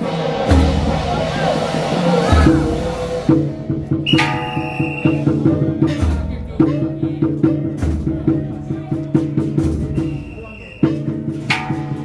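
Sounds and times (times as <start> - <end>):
ringing gong strikes: 0.0 - 6.2
deep drum booms: 0.0 - 12.0.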